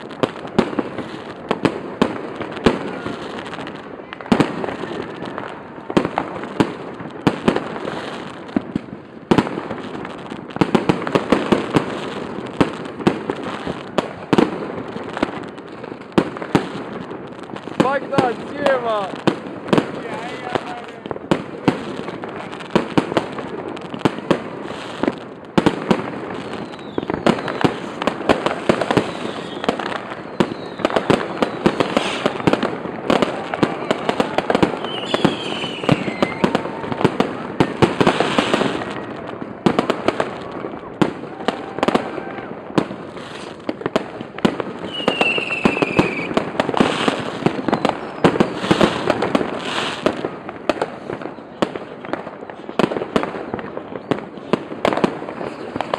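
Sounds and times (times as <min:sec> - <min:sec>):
fireworks bangs and crackles: 0:00.0 - 0:55.9.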